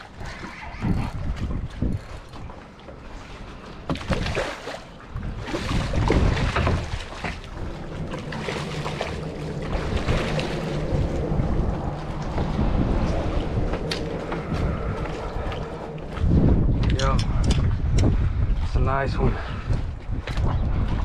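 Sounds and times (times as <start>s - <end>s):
wind rumble on microphone: 0.0s - 21.0s
fish thrashing and splashing: 3.8s - 12.0s.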